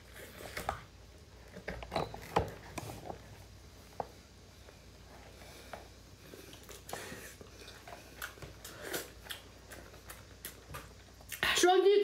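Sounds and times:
mouth smacks and clicks: 8.1s - 11.5s.

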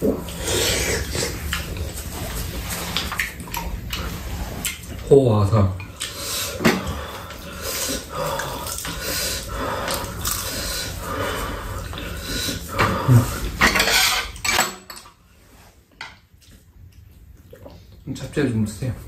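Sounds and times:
people sipping soup: 0.0s - 5.1s, 5.8s - 13.6s.

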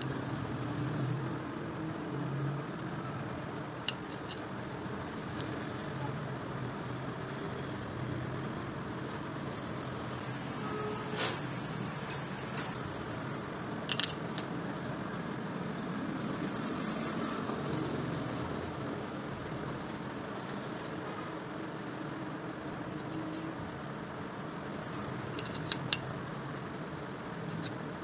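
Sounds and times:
light metallic clinks: 12.1s - 12.8s.

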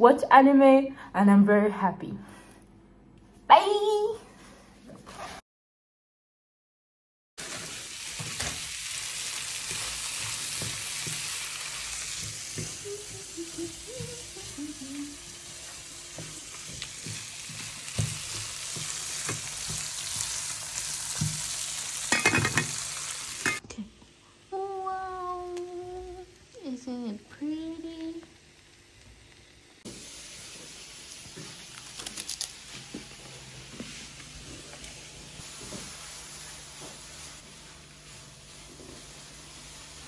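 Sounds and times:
food sizzling in a pan: 7.4s - 23.6s, 24.4s - 40.0s.

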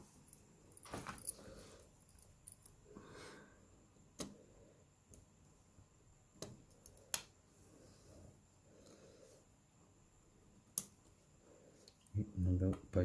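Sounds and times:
faint handling rustle: 0.0s - 2.7s.

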